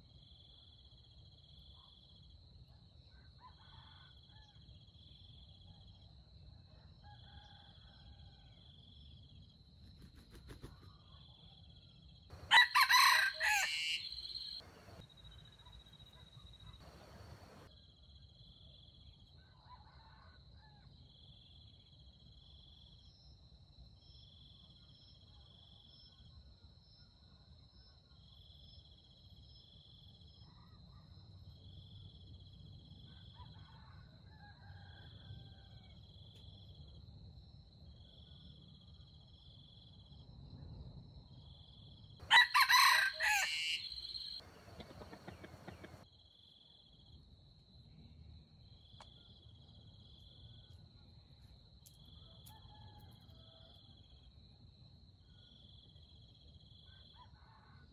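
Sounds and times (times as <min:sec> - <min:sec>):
rooster crowing: 0:12.3 - 0:15.0, 0:16.8 - 0:17.7, 0:42.2 - 0:46.0, 0:52.3 - 0:53.8, 0:57.2 - 0:57.9
insects whining and chirping: 0:12.3 - 0:17.7, 0:42.2 - 0:46.1.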